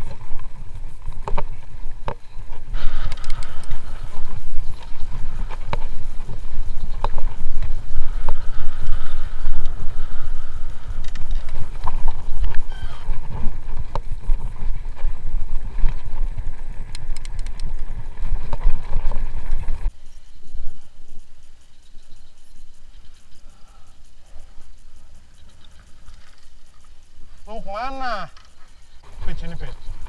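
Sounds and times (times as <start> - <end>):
bike rattling over bumps: 0.0 - 19.9
wind and trail rumble: 0.0 - 30.0.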